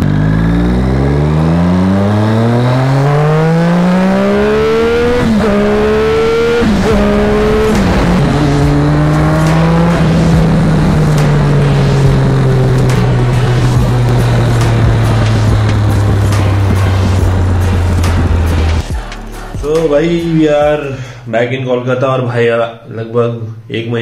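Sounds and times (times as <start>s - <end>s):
motorcycle engine accelerating hard: 0.0s - 19.1s.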